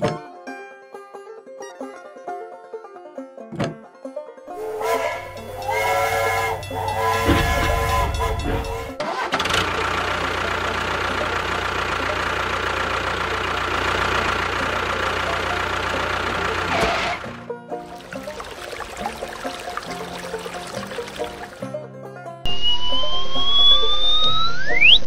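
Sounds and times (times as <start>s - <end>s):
motor humming: 4.6s - 9.0s
pitched tone stepping between notes: 22.5s - 25.0s.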